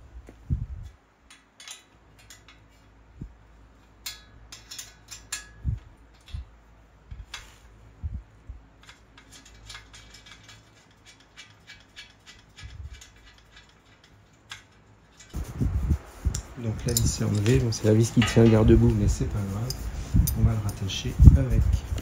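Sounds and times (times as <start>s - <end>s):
metal tools clicking and clinking: 1.3s - 2.8s, 4.0s - 6.4s, 8.8s - 15.4s, 16.6s - 21.0s.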